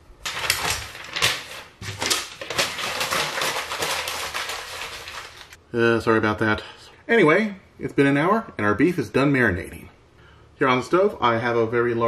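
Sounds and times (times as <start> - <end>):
paper ripping and crumpling: 0.2 - 5.6.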